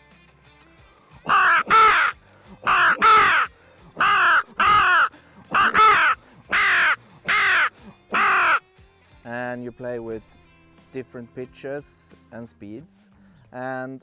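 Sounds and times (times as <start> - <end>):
crow call caws: 1.2 - 8.6.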